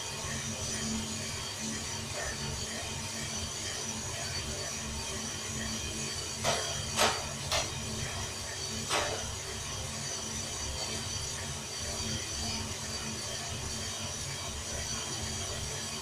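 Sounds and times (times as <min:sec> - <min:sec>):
coffee roaster humming and rattling: 0:00.0 - 0:16.0.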